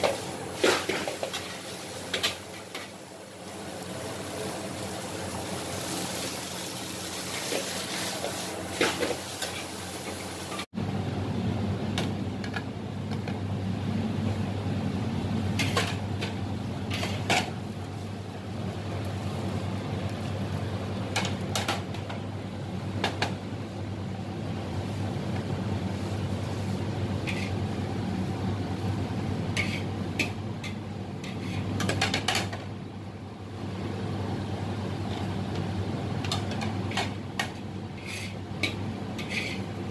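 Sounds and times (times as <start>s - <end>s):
noodles sizzling in a wok: 0.0s - 10.7s, 24.4s - 32.5s, 33.5s - 39.9s
low kitchen hum: 0.0s - 39.9s
metal spatula scraping a wok: 27.2s - 27.6s, 29.6s - 29.9s, 38.0s - 39.7s.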